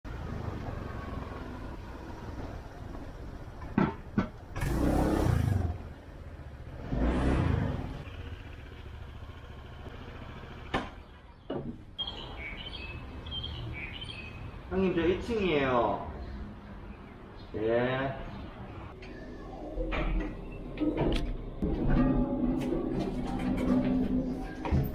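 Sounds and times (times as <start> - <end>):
traffic rumble: 0.0 - 24.9
vehicles passing: 0.1 - 21.7
birds chirping: 9.9 - 20.8.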